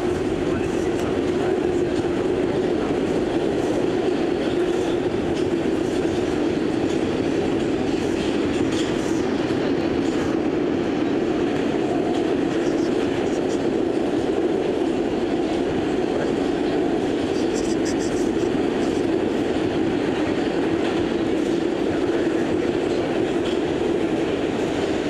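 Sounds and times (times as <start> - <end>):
subway train wheels on rails: 0.0 - 25.0.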